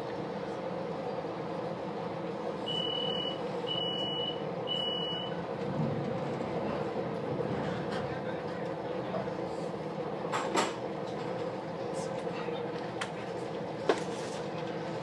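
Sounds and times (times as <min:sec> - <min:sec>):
railcar hum: 0:00.0 - 0:15.0
train door warning beeps: 0:02.6 - 0:05.4.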